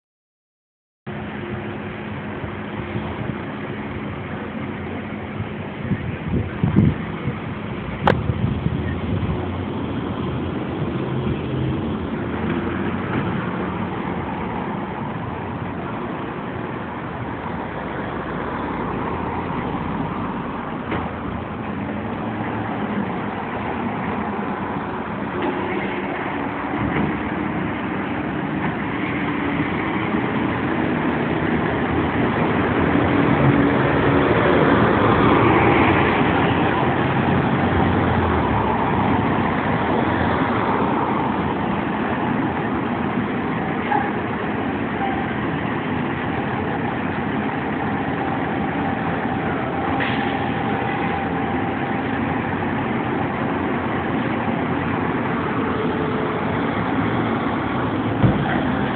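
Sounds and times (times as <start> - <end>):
cars driving past: 1.1 - 58.9
engine rumble: 1.1 - 58.9.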